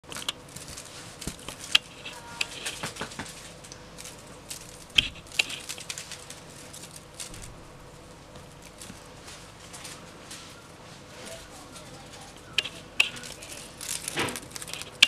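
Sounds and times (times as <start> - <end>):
faint steady hum: 0.0 - 15.0
kitten pouncing taps and rustles: 2.5 - 3.5.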